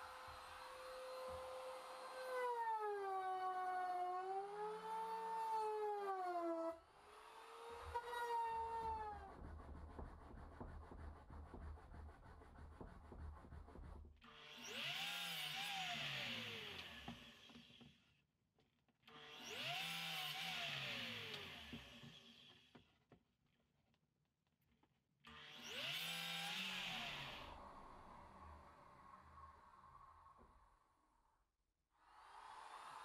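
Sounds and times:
miter saw cutting wood: 0:14.3 - 0:17.5, 0:19.2 - 0:22.1, 0:25.3 - 0:27.6.

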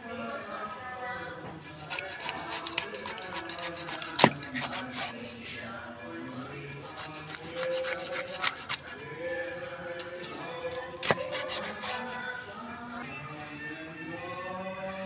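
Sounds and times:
background music: 0:00.0 - 0:15.0
knife cutting fish on board: 0:01.7 - 0:05.2, 0:06.8 - 0:09.0, 0:09.7 - 0:12.2.

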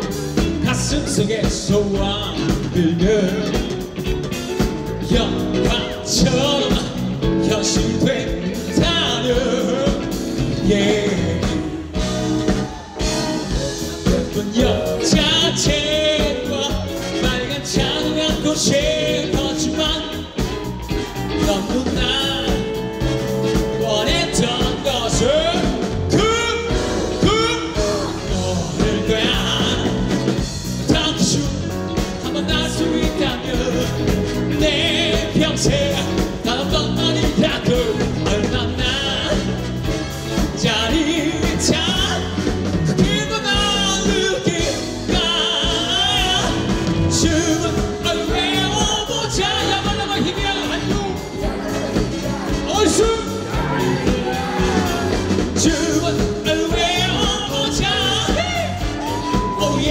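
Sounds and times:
live rock band playing: 0:00.0 - 0:59.9
man singing: 0:00.0 - 0:59.9.

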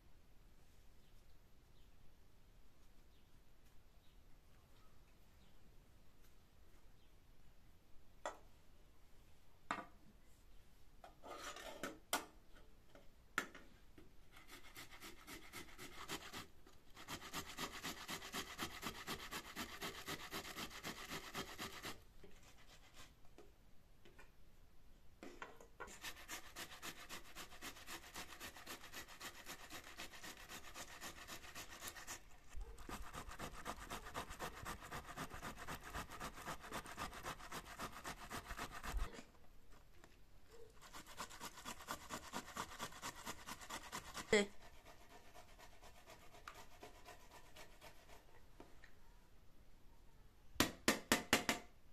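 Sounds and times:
tomatoes rasping on metal grater: 0:25.9 - 0:39.1.

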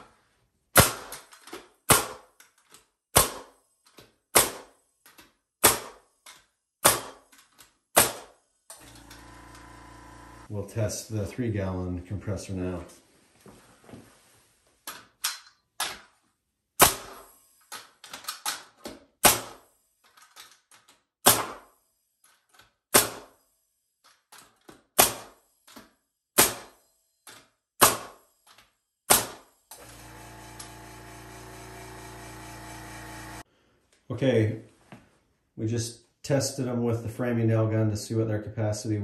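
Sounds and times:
nail gun firing into wood: 0:00.7 - 0:02.4, 0:03.1 - 0:03.6, 0:04.3 - 0:04.8, 0:05.6 - 0:06.0, 0:06.8 - 0:07.3, 0:07.9 - 0:09.2, 0:16.8 - 0:17.3, 0:18.1 - 0:19.7, 0:21.2 - 0:21.7, 0:22.9 - 0:23.4, 0:24.7 - 0:25.8, 0:26.4 - 0:26.8, 0:27.8 - 0:28.2, 0:29.1 - 0:32.7
air compressor motor hum: 0:08.8 - 0:10.5, 0:29.8 - 0:33.5.

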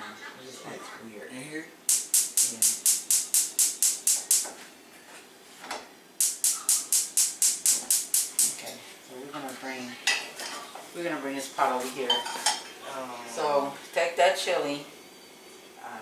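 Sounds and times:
person speaking: 0:01.9 - 0:04.4.

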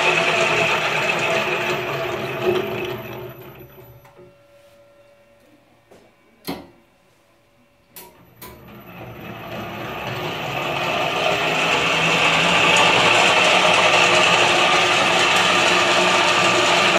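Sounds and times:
ball mill whirring: 0:00.0 - 0:04.4, 0:07.8 - 0:16.9.

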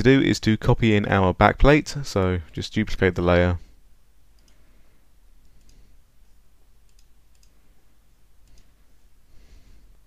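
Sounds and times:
low steady hum: 0:00.0 - 0:10.0
computer mouse clicks: 0:04.3 - 0:04.6, 0:05.4 - 0:05.8, 0:06.8 - 0:07.6, 0:08.4 - 0:08.8.

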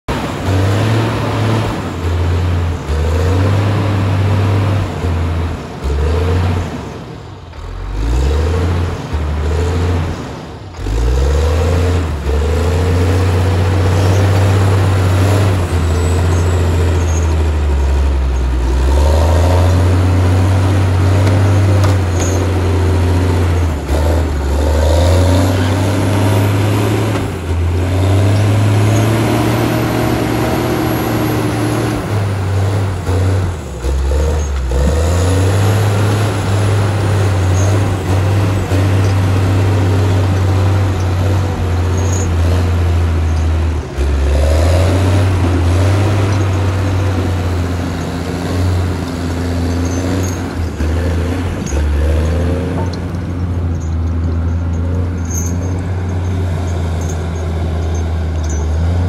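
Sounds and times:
diesel engine running under load: 0:00.1 - 0:59.0.

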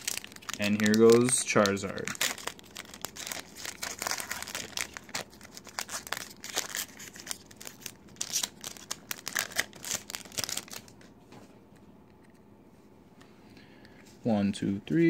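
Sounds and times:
foil wrapper tearing and crinkling: 0:00.0 - 0:11.0.

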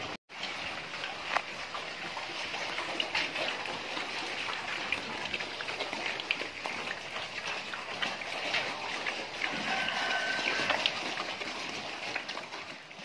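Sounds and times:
water pattering: 0:00.0 - 0:13.0.

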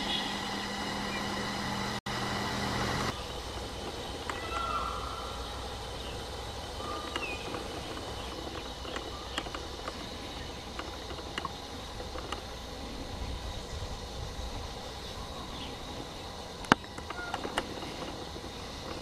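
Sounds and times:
insect drone: 0:00.0 - 0:19.0
bird-like chirps: 0:03.1 - 0:11.1, 0:15.0 - 0:19.0
sharp clicks: 0:07.0 - 0:12.5.

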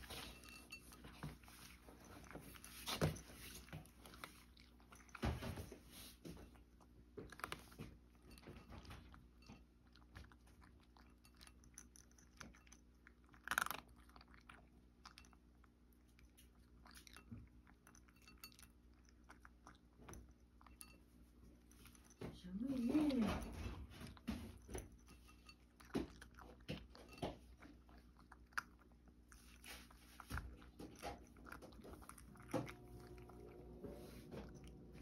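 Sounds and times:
cat crunching dry kibble: 0:05.8 - 0:20.8, 0:22.8 - 0:35.0.

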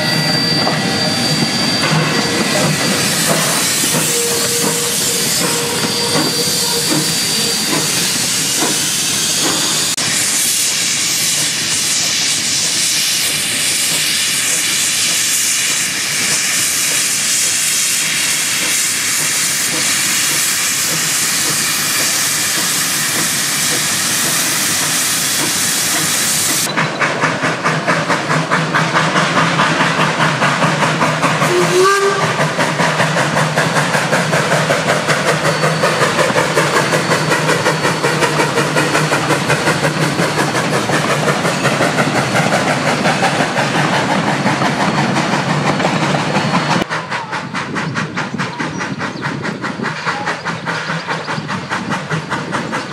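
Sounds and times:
train whistle toot: 0:00.0 - 0:09.6, 0:31.4 - 0:32.8
steam hissing: 0:00.0 - 0:52.9
steam locomotive chuffing: 0:00.0 - 0:52.9.

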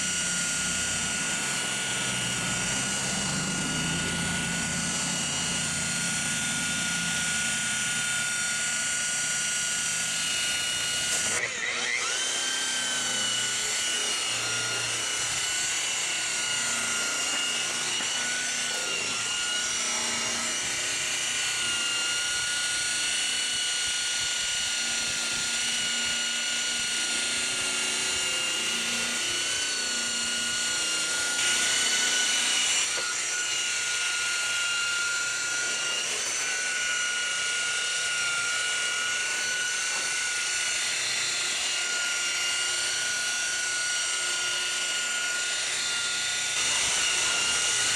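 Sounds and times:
electric polisher whining: 0:00.0 - 0:47.9.

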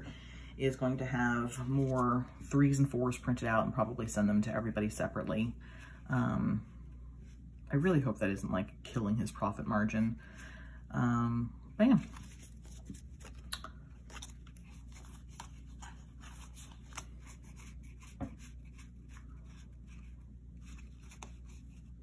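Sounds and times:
cards sliding and ticking: 0:12.0 - 0:22.0.

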